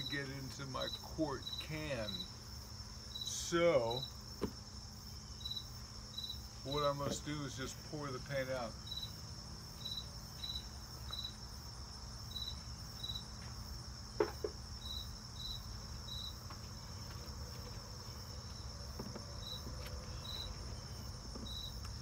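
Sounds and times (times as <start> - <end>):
insect chirping: 0.0 - 22.0.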